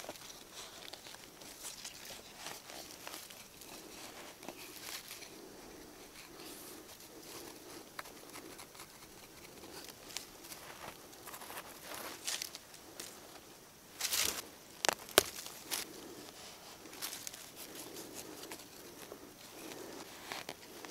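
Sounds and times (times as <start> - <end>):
hand tool scraping soil: 0.0 - 12.6
dirt grains pattering: 0.0 - 20.9.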